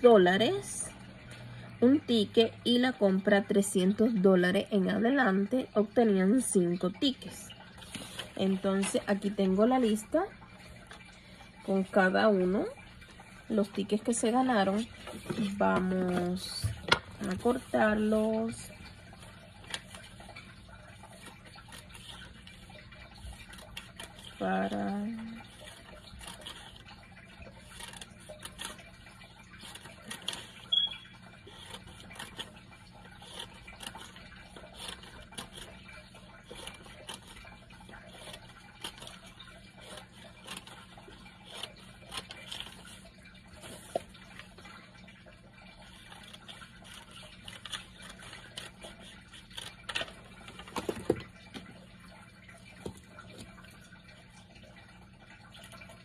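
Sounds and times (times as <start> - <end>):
scissors snipping paper: 31.5 - 43.0, 46.2 - 51.1.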